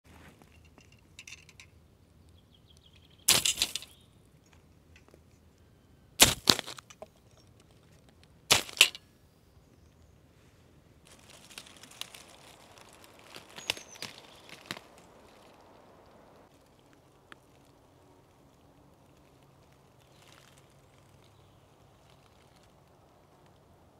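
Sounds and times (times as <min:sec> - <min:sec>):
rustling in dry leaves: 0:00.1 - 0:00.8, 0:03.2 - 0:04.7, 0:05.4 - 0:07.0, 0:07.6 - 0:23.9
saws clattering onto ground: 0:00.1 - 0:01.7, 0:03.0 - 0:05.2, 0:06.2 - 0:09.0, 0:11.1 - 0:15.6
bird chirp: 0:01.1 - 0:06.2, 0:09.0 - 0:10.3, 0:13.3 - 0:23.8.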